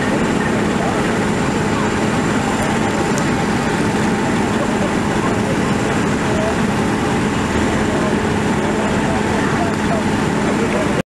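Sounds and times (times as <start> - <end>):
diesel engines and pumps running: 0.0 - 11.0.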